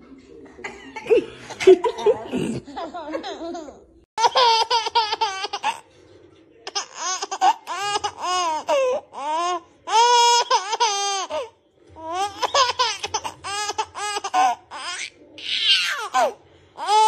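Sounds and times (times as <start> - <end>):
baby laughing: 3.1 - 5.8, 6.6 - 17.0.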